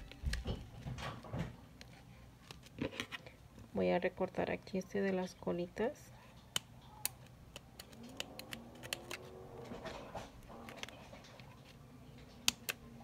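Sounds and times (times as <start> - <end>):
scissors snipping: 6.5 - 9.3.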